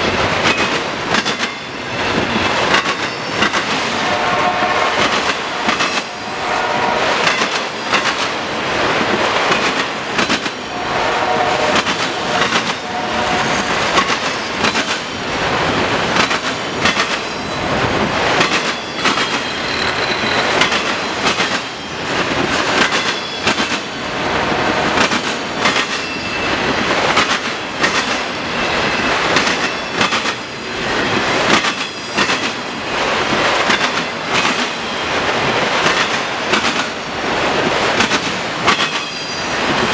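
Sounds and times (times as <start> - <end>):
train wheels clacking over crossing: 0.0 - 39.9
high-pitched wheel squeals: 18.7 - 21.2, 26.0 - 26.6.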